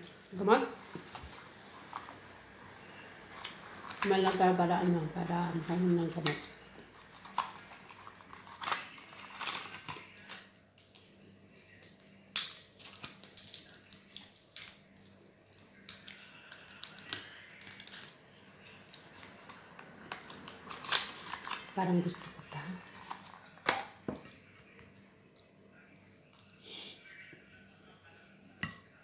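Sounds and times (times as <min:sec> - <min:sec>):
plastic packaging crinkling: 0:05.6 - 0:10.5, 0:16.6 - 0:24.0.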